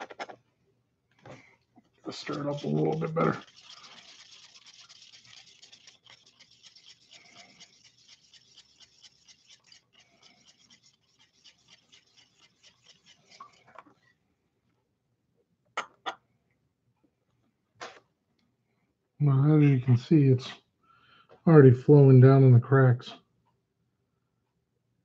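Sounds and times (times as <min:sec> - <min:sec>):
stick scraping plastic cup: 0:02.1 - 0:13.9.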